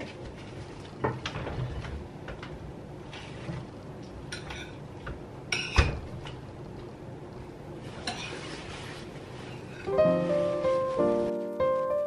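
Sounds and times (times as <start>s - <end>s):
dishes and cutlery clinking: 4.3s - 4.8s.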